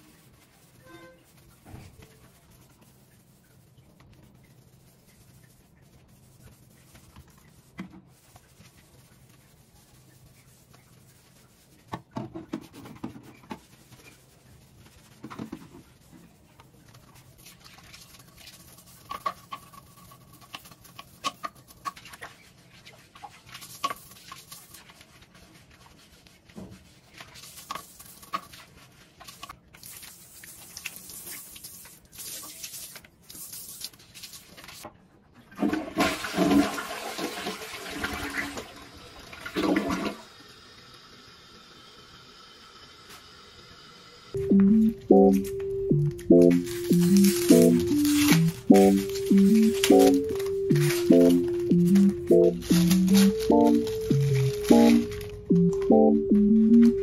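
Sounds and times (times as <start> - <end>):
brush scraping toilet bowl: 17.5 - 33.8
toilet flushing: 35.4 - 44.3.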